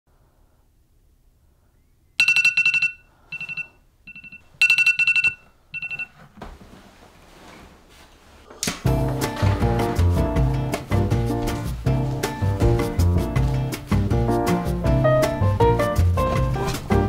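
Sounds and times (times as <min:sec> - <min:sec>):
phone alarm beeping: 0:02.2 - 0:06.1.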